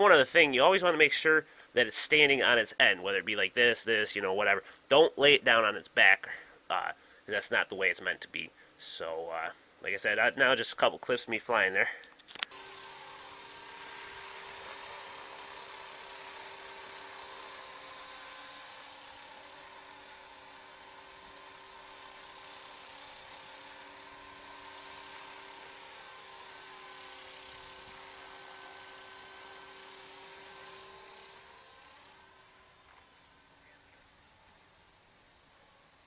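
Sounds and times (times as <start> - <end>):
rc helicopter whine: 12.4 - 36.0.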